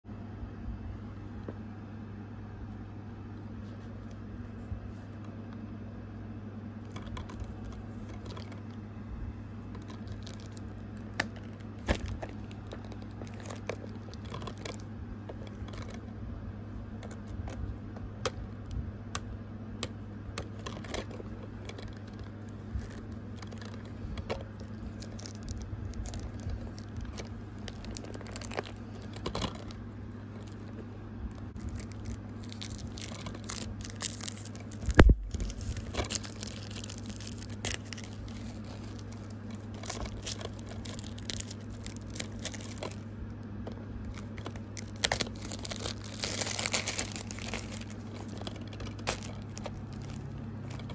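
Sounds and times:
steady low hum: 0.0s - 50.9s
plastic wrap crinkling and tearing: 9.7s - 16.0s, 20.4s - 50.9s.

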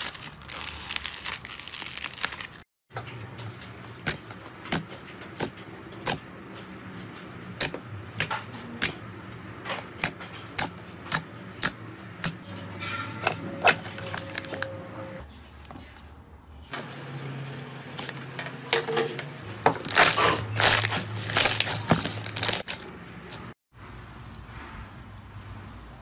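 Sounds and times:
slime squelching: 19.8s - 23.6s.

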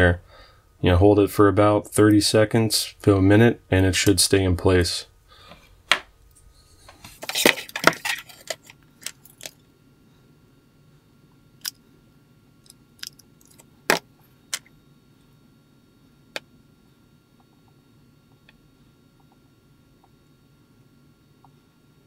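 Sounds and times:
plastic parts clicking and knocking: 7.2s - 9.6s.

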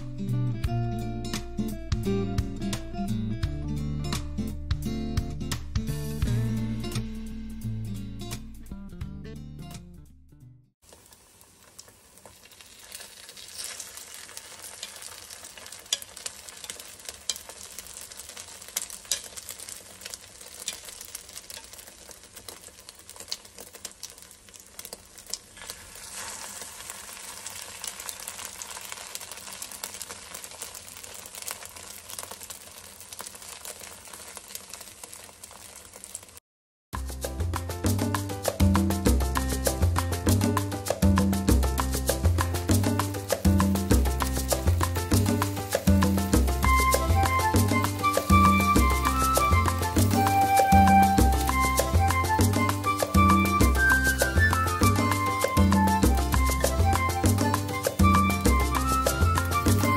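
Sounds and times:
food sizzling in oil: 10.8s - 36.4s, 37.9s - 59.9s.

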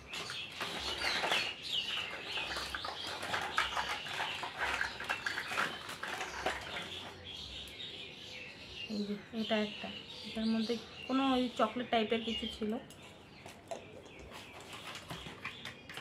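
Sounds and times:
plastic toys clattering: 0.0s - 7.2s, 13.6s - 16.0s
birds chirping: 0.0s - 16.0s.

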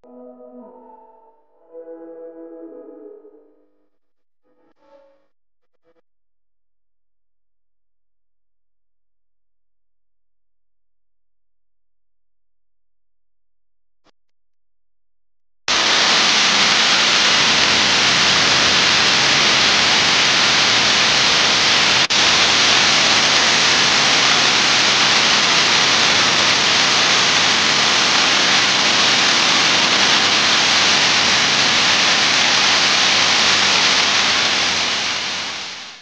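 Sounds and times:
loud static hiss: 15.7s - 36.0s.

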